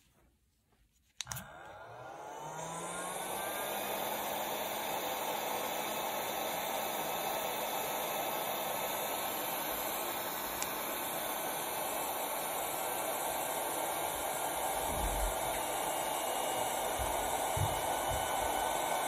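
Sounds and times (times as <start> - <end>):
hot air fan blowing: 1.2 - 19.0.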